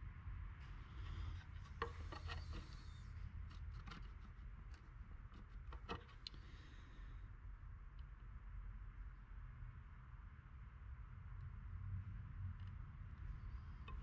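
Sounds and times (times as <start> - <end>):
low steady hum: 0.0 - 14.0
circuit boards clicking and scraping: 1.3 - 6.4.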